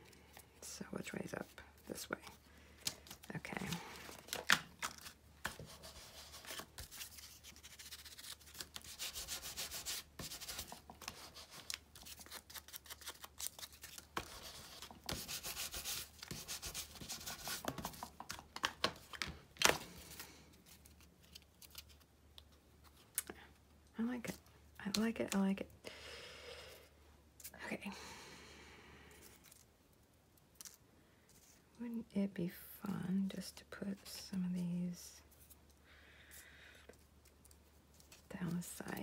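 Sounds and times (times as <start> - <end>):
scratchy scrubbing on cardstock: 14.2 - 18.0.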